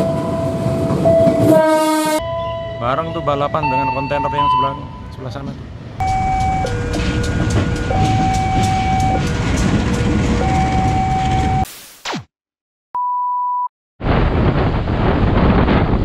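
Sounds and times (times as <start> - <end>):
diesel locomotive engine rumbling: 0.0 - 11.6
train wheel clacks: 5.4 - 11.6
two-tone crossing alarm: 6.0 - 11.7.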